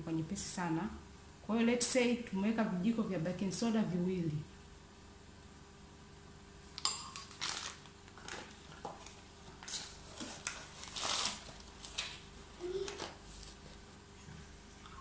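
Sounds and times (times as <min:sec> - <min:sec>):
plastic bag rustling: 0:07.1 - 0:13.9.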